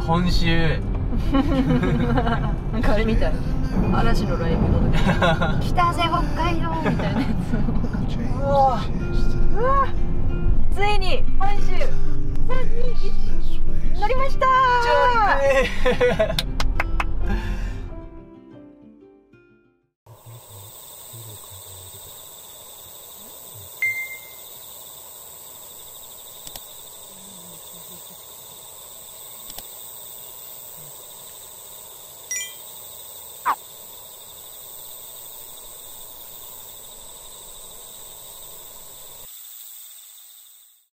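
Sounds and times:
high insect drone: 11.4s - 16.3s, 20.1s - 40.9s.

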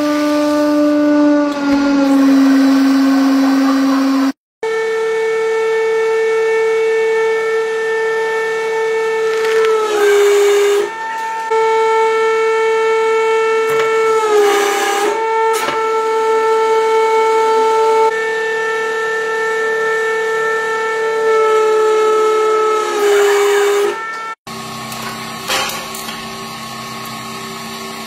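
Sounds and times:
hydraulic pump whining: 0.0s - 28.0s.

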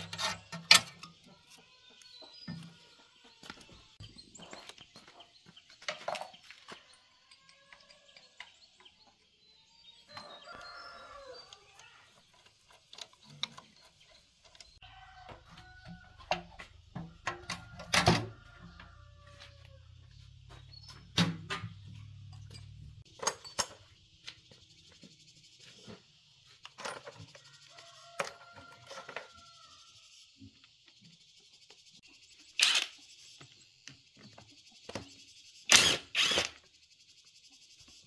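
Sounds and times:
hand tools clinking on metal: 21.6s - 23.9s.

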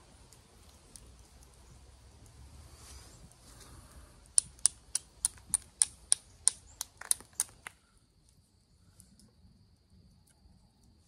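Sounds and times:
stone knapping clicks: 4.3s - 7.8s.

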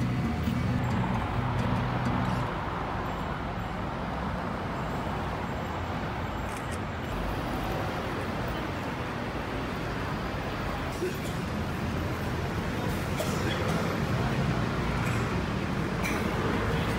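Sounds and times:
background music: 0.0s - 2.8s
vehicles passing: 0.0s - 16.9s.

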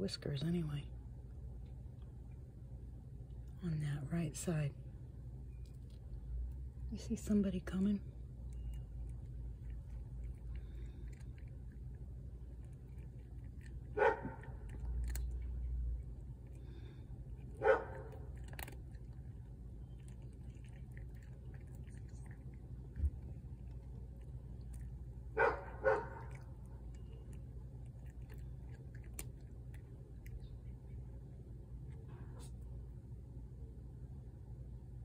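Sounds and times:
cat crunching dry kibble: 5.6s - 32.0s
dog barking: 13.9s - 14.8s, 17.5s - 18.2s, 25.4s - 26.4s.

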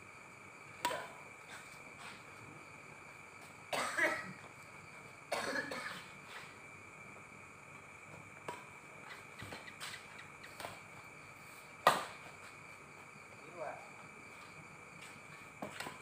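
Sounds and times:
person coughing: 3.7s - 4.4s, 5.3s - 6.0s.

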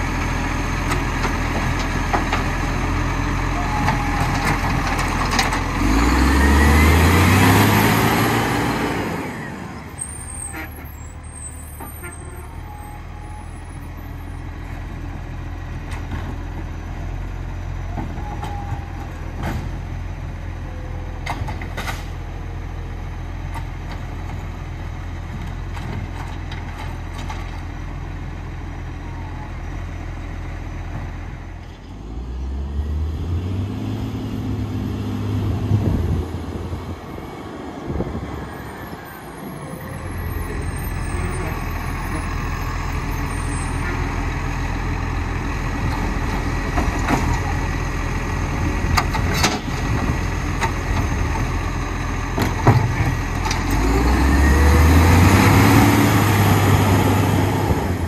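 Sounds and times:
garbage truck engine revving: 0.7s - 11.7s, 39.2s - 58.0s.

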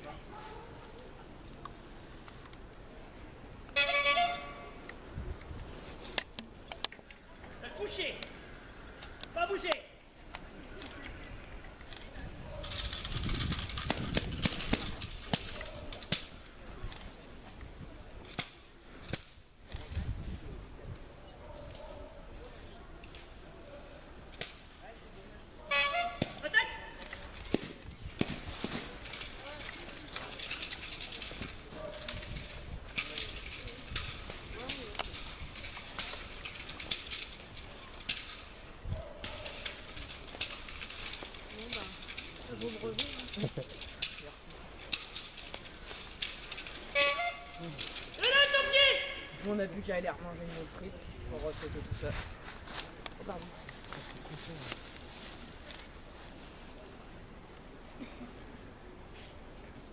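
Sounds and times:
bite suit rustling and scuffing: 50.4s - 56.4s.

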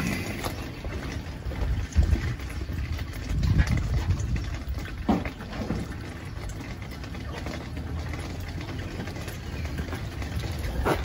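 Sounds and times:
wind buffeting microphone: 0.0s - 6.6s.

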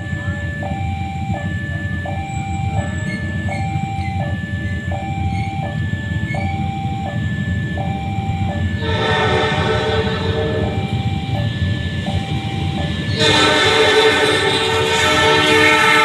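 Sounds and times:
train rumbling: 0.0s - 16.0s
two-tone railway warning beeps: 0.0s - 16.0s
train horn: 8.8s - 11.1s, 12.7s - 16.0s.

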